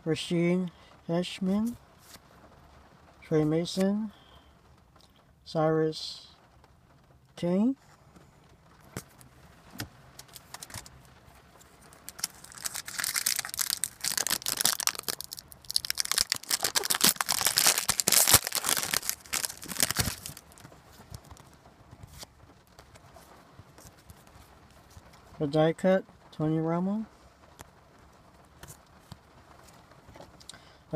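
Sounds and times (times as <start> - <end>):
foil wrapper tearing and crinkling: 10.2 - 11.0, 11.9 - 22.3.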